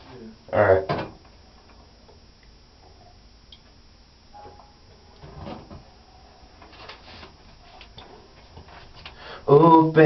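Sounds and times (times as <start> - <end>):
rustling: 5.2 - 9.2.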